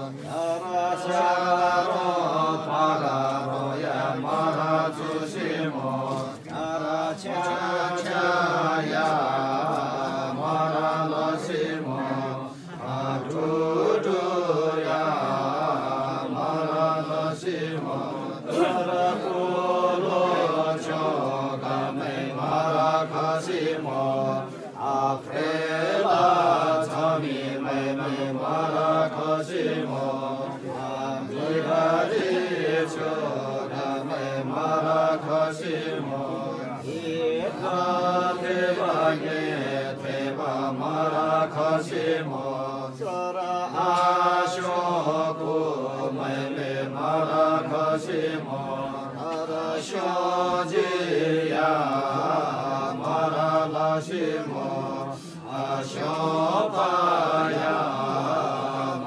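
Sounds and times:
voices chanting in sing-song: 0:00.0 - 0:59.0.

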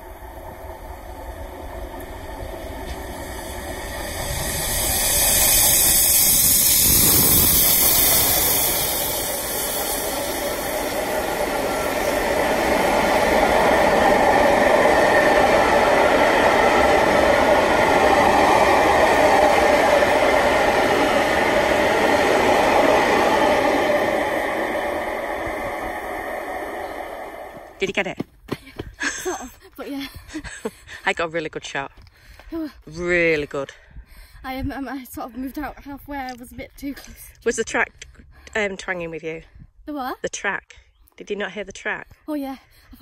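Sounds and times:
steam locomotive passing: 0:00.0 - 0:28.1
train wheels clattering on rails: 0:01.3 - 0:24.5.

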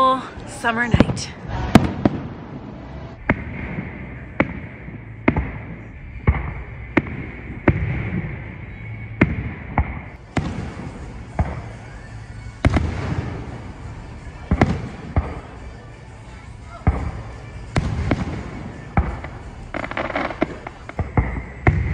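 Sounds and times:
fireworks bursting in sharp bangs: 0:00.7 - 0:21.9.

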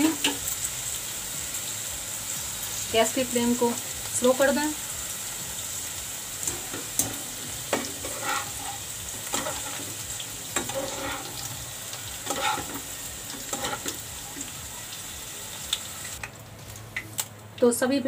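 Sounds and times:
okra sizzling in hot oil: 0:00.0 - 0:17.7
metal utensils scraping a pan: 0:06.5 - 0:11.6, 0:12.2 - 0:14.0.

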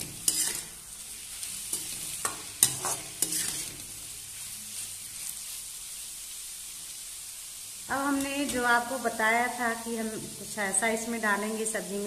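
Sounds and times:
vegetables sizzling in oil: 0:00.0 - 0:12.0
ladle scraping a steel pan: 0:00.3 - 0:00.7, 0:02.6 - 0:03.7.

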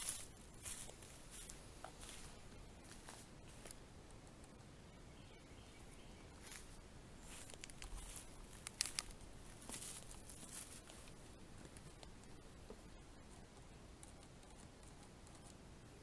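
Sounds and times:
rustling and crunching: 0:00.0 - 0:03.8, 0:06.4 - 0:13.4.

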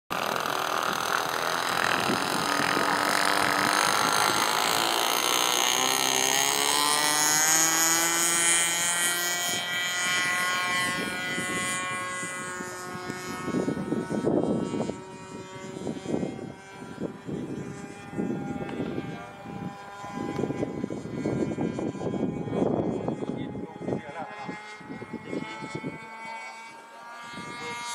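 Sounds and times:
model airplane engine running: 0:00.1 - 0:27.9.

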